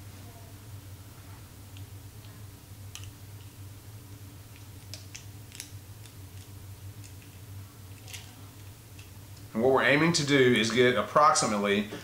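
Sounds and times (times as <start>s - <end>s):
steady low hum: 0.0s - 12.0s
plastic tube crinkling: 4.5s - 9.1s.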